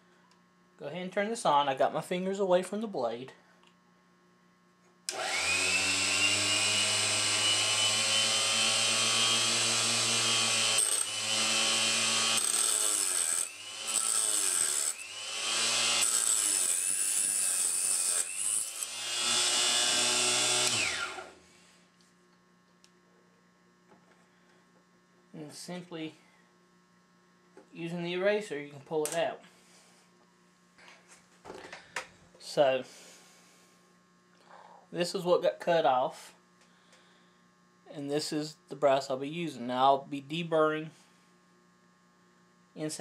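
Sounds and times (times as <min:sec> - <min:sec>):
chop saw motor whine: 0:05.1 - 0:21.6
saw blade cutting brass: 0:06.8 - 0:21.2.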